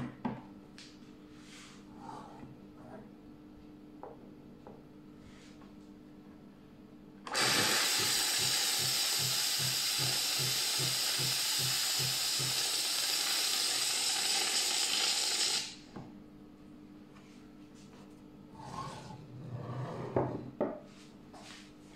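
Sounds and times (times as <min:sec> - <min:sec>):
coffee machine steam hissing: 0:07.3 - 0:15.8.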